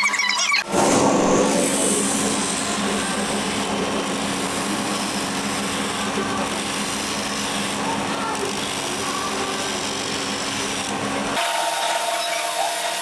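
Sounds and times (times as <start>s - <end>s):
polishing wheel motor humming: 0.8s - 13.0s.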